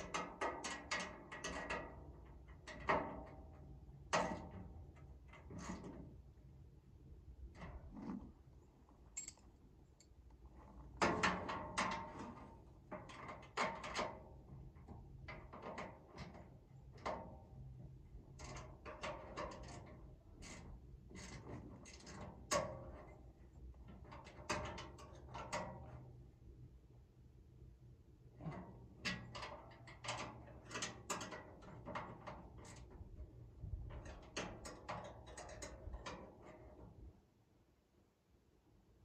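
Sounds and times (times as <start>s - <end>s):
hand tools clanking on bolts: 9.2s - 9.5s.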